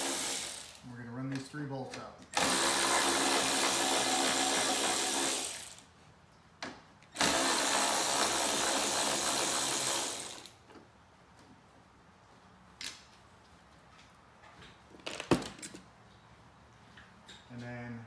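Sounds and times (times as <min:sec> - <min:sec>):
power tool motor whine: 0:07.2 - 0:10.5.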